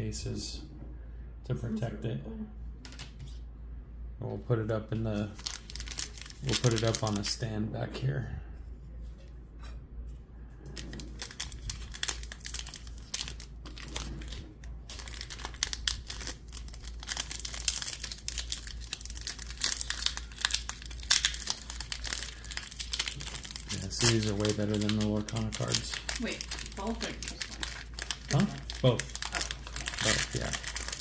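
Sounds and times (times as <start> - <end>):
foil pack crinkling and tearing: 5.2 - 7.3, 10.8 - 31.0.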